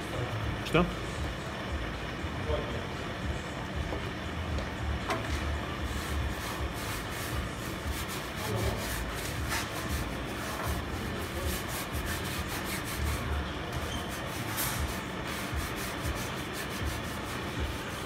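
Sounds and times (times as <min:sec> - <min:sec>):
rag rubbing on steel sheet: 0:05.8 - 0:18.0.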